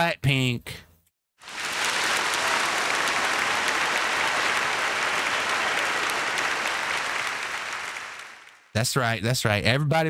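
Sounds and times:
crowd applause: 1.4 - 8.7.

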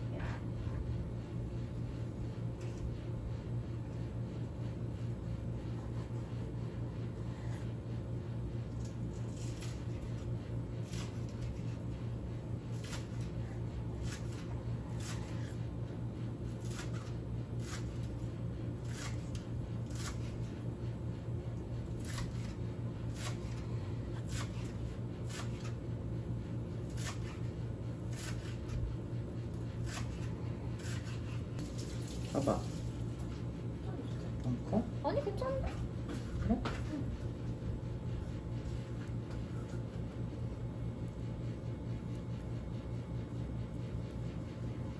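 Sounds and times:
knife slicing fish: 16.5 - 18.2, 18.8 - 20.4, 22.0 - 25.8, 26.8 - 28.8, 29.8 - 31.9.

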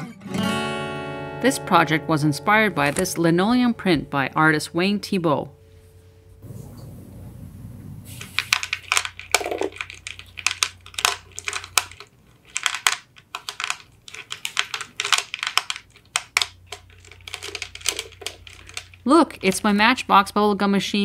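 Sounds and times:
gumballs clicking together: 8.3 - 19.7.

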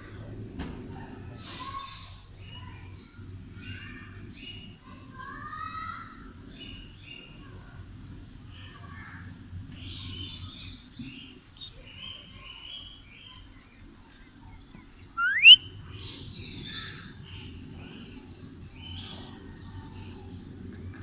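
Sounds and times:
parakeet chirps: 11.3 - 11.7, 15.2 - 15.7
shrill parakeet call: 11.3 - 11.7, 15.2 - 15.7
parakeet screech: 15.2 - 15.6.

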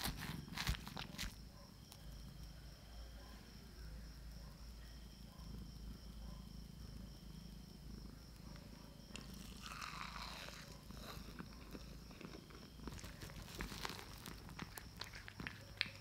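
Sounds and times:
cat chewing and licking: 0.0 - 1.4, 9.1 - 16.0.

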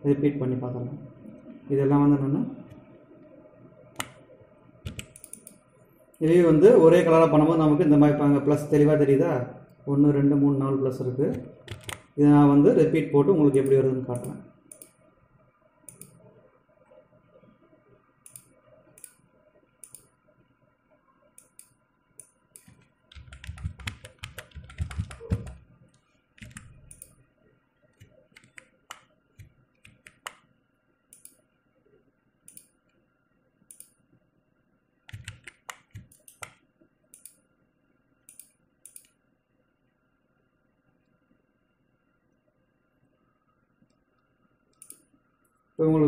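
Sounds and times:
mouse clicks: 4.0 - 4.2, 4.9 - 5.6, 13.5 - 15.0, 15.9 - 16.2, 18.2 - 19.2, 19.8 - 20.1, 21.4 - 25.6, 26.4 - 27.2, 28.0 - 30.5, 31.1 - 31.4, 32.5 - 32.8, 33.7 - 34.0, 35.1 - 37.4, 38.3 - 39.2, 43.9 - 45.1
computer keyboard keystrokes: 4.8 - 5.6, 11.3 - 12.1, 21.4 - 25.6, 26.4 - 27.1, 28.0 - 30.4, 35.1 - 36.6.

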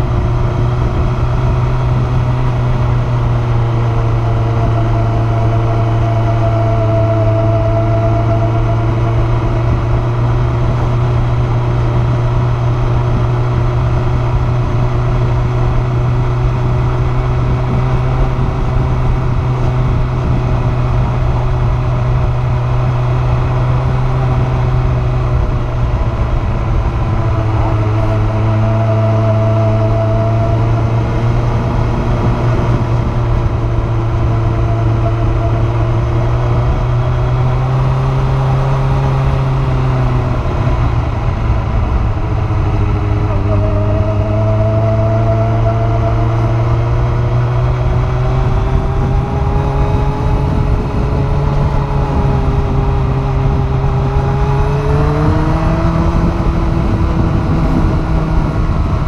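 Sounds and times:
motorcycle engine cruising: 0.0 - 59.0.

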